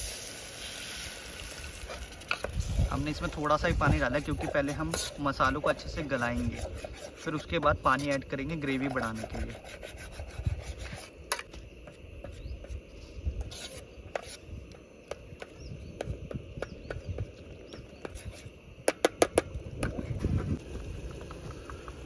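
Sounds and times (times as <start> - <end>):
spatula scraping a cooking pan: 1.7 - 11.4, 13.4 - 14.4.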